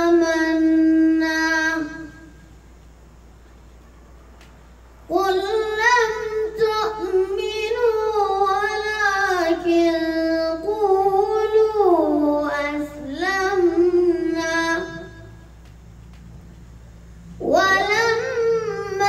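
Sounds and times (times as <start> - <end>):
boy chanting melodic recitation: 0.0 - 2.6, 5.0 - 15.6, 17.2 - 19.0.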